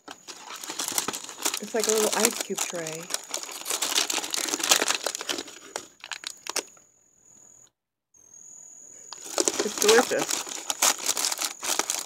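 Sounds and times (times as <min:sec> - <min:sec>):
plastic packaging crinkling: 0:00.0 - 0:06.8, 0:09.1 - 0:12.0.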